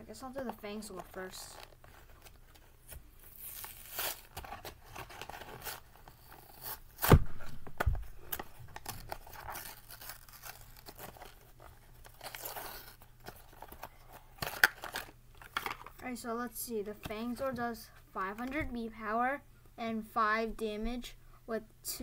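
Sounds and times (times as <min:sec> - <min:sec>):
packaging tearing and crinkling: 0:01.0 - 0:16.0
dull thump: 0:07.0 - 0:08.1.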